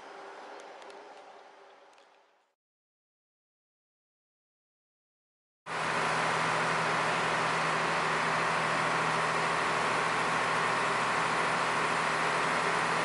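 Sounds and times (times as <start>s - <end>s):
ferry engine droning: 5.7s - 13.0s.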